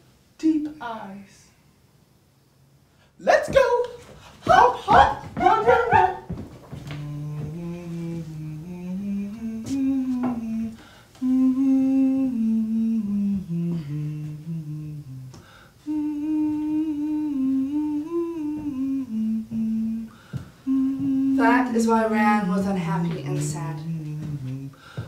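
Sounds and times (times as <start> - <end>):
person humming a melody: 6.9 - 21.6, 23.3 - 24.8.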